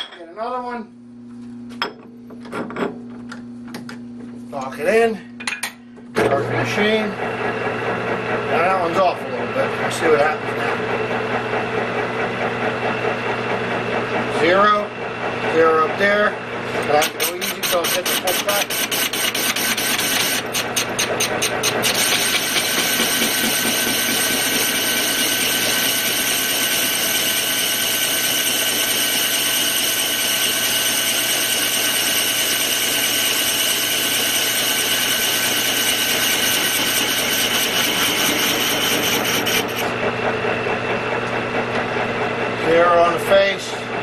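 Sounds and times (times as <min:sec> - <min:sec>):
lathe humming: 0:06.9 - 0:44.0
file scraping on metal: 0:16.8 - 0:39.9.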